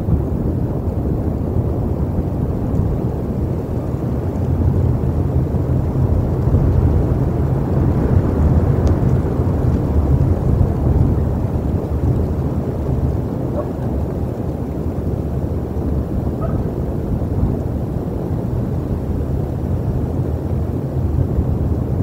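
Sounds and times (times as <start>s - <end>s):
wind buffeting microphone: 0.0s - 22.0s
faint tick: 8.8s - 9.2s.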